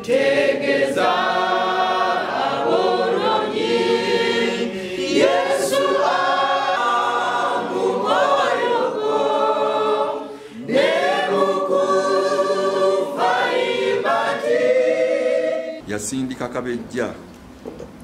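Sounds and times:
congregation singing a hymn: 0:00.0 - 0:15.8.

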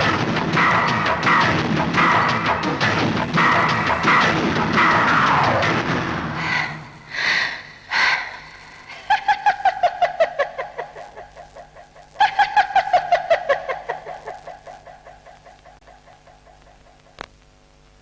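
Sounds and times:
woman cackling laugh: 0:08.9 - 0:17.0.

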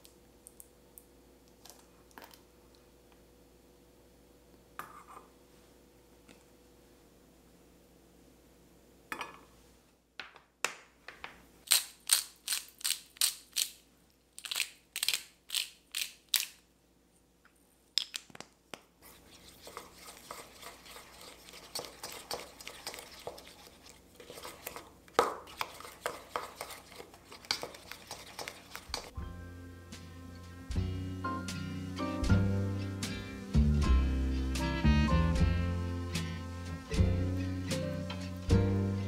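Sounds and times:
wooden spoon mixing sauce: 0:19.0 - 0:29.2
spoon scraping steel bowl: 0:19.1 - 0:29.2.

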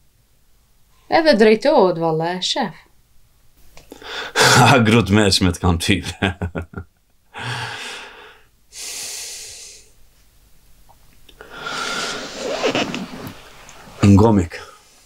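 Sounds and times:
man breathing heavily: 0:03.9 - 0:04.6, 0:07.3 - 0:09.9, 0:11.4 - 0:12.4.

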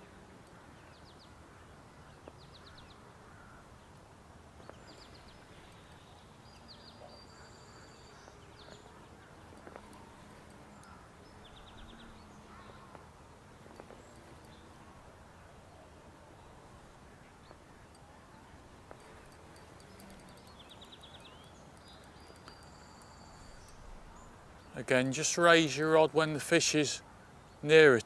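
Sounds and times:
small birds calling: 0:04.6 - 0:14.9, 0:15.6 - 0:26.1.

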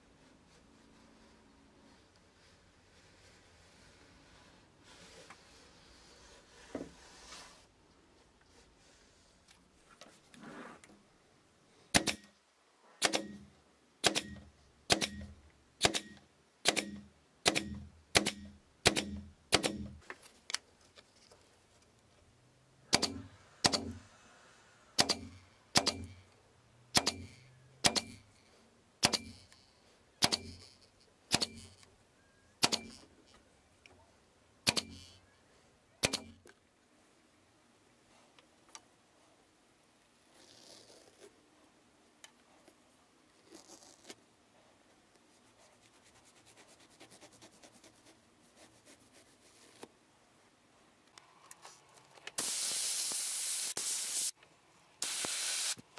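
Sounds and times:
staple gun firing staples: 0:11.9 - 0:12.3, 0:13.0 - 0:13.4, 0:14.0 - 0:20.0, 0:22.9 - 0:24.0, 0:25.0 - 0:26.1, 0:26.9 - 0:28.2, 0:29.0 - 0:29.4, 0:30.2 - 0:30.6, 0:31.3 - 0:31.7, 0:32.6 - 0:33.0, 0:34.7 - 0:35.0, 0:36.0 - 0:36.4.

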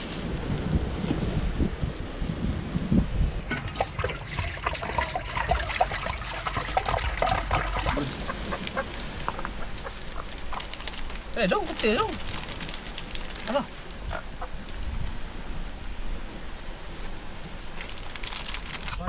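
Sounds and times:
water pouring into a pot: 0:03.5 - 0:08.1.

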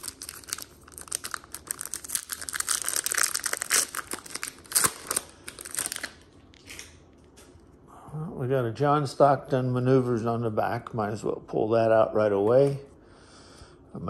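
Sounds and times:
foil wrapper tearing and crinkling: 0:00.0 - 0:07.0.

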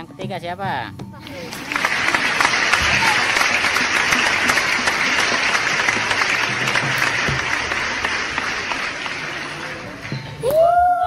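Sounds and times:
applause: 0:01.3 - 0:10.5.

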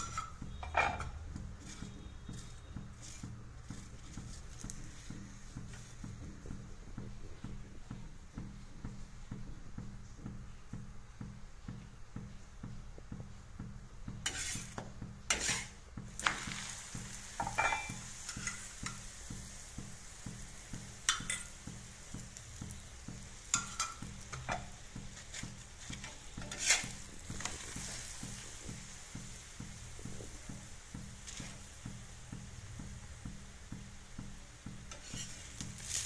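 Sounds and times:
utensil scraping a pan: 0:00.0 - 0:06.7, 0:14.2 - 0:33.0, 0:34.7 - 0:36.0
flatbread sizzling in a pan: 0:00.0 - 0:36.0.

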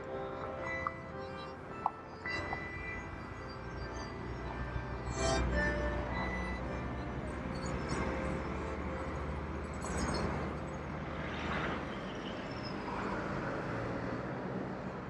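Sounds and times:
truck passing: 0:00.0 - 0:14.8
cars passing: 0:00.0 - 0:15.0.

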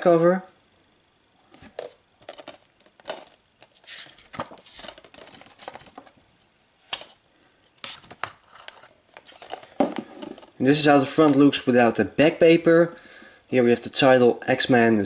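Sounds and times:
paper sleeve rustling and scraping: 0:03.7 - 0:06.0.

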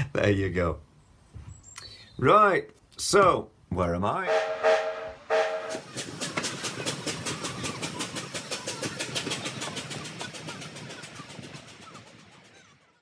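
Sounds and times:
steam locomotive chuffing: 0:04.3 - 0:13.0.

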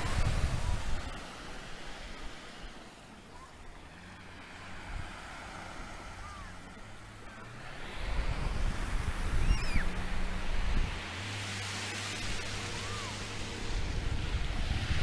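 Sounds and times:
wind buffeting microphone: 0:00.0 - 0:02.5, 0:06.0 - 0:15.0
small waves breaking on beach: 0:00.0 - 0:15.0.

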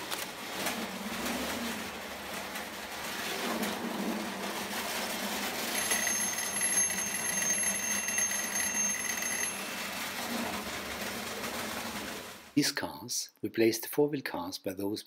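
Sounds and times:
toy train running on track: 0:00.5 - 0:12.5
crossing warning bell ringing: 0:05.7 - 0:10.5.

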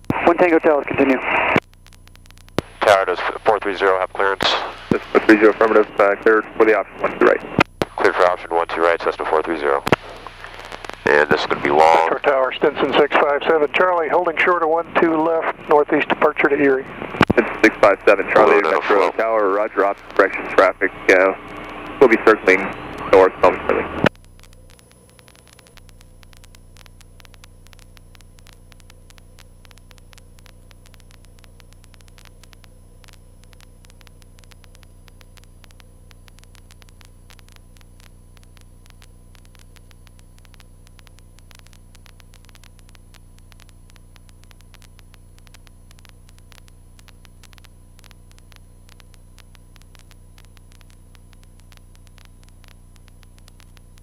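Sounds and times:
crackling static clicks: 0:00.0 - 0:54.0
plane engine drone: 0:02.6 - 0:24.1.

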